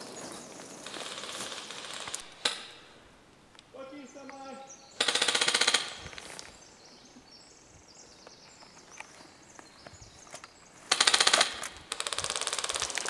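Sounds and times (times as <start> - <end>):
airsoft rifle full-auto burst: 0.8 - 2.7, 5.0 - 6.0, 10.9 - 13.0.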